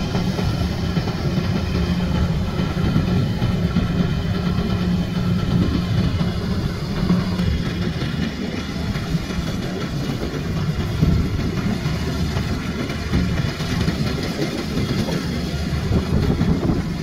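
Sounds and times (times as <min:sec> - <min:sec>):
combine harvester engine droning: 0:00.0 - 0:17.0.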